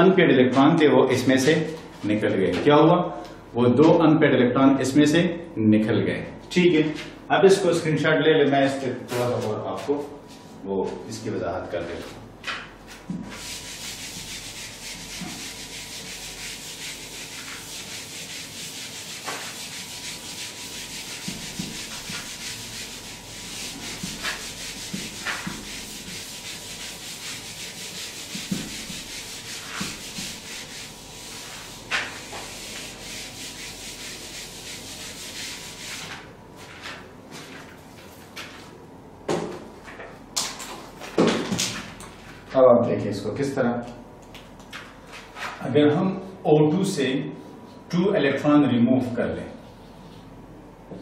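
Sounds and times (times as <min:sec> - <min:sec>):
eraser wiping whiteboard: 0:12.0 - 0:37.6.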